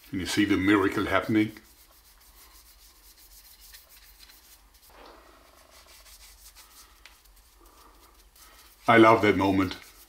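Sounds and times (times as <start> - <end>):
paintbrush scratching on wood: 0.0 - 10.0
steady low hum: 4.9 - 8.8.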